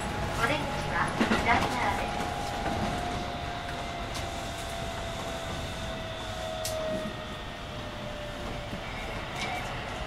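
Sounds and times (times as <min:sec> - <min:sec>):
wheels rolling on rail: 0:00.0 - 0:10.0.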